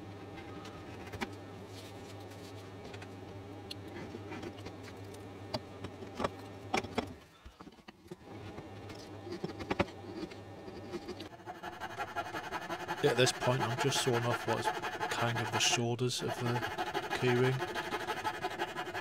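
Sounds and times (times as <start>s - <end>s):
steady low hum: 8.2s - 19.0s
chisel cutting wood: 11.0s - 19.0s.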